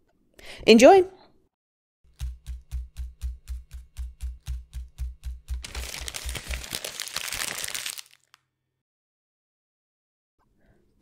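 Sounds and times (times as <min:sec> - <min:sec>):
jingle beat with bass thumps: 0:02.1 - 0:05.6
paper crinkling: 0:05.6 - 0:08.4.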